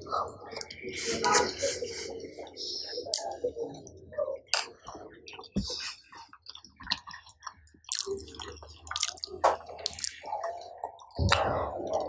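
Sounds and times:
chewing food: 0:00.0 - 0:12.0
wet squish of food: 0:03.0 - 0:12.0.

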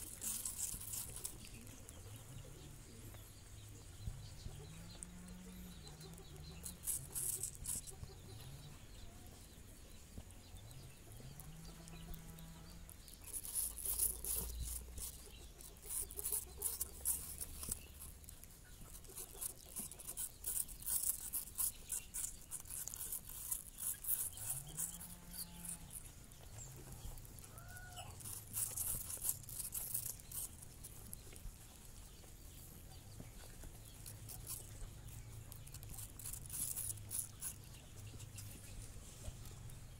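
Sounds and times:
rabbits chewing apple: 0:00.0 - 0:39.9.

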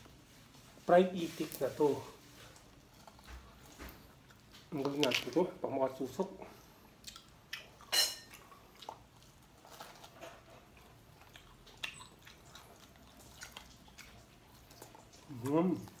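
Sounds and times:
crispy food crackle: 0:00.1 - 0:06.3, 0:07.1 - 0:16.0
chewing: 0:02.1 - 0:05.4, 0:06.6 - 0:16.0.

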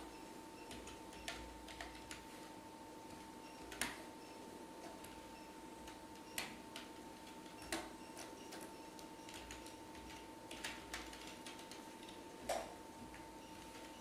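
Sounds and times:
faint steady hum: 0:00.0 - 0:14.0
keyboard keys clicking: 0:05.8 - 0:12.7.

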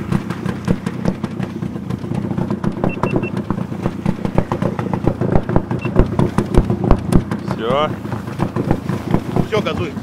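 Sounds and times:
outboard motor running: 0:00.0 - 0:10.0
short high beeps: 0:02.9 - 0:03.3.

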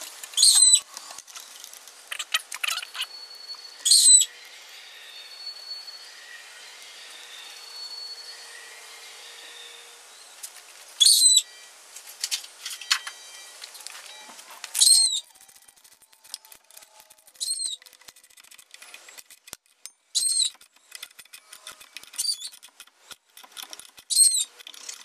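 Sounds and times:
bird calling: 0:02.1 - 0:03.2, 0:14.8 - 0:18.0.

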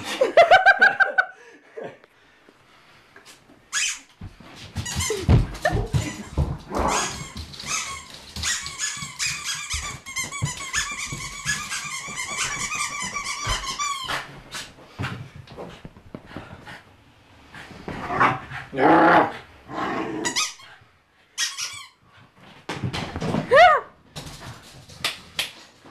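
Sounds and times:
squeaky dog toy squeaking: 0:03.7 - 0:04.1, 0:06.9 - 0:14.1, 0:20.3 - 0:20.6, 0:21.4 - 0:22.0.

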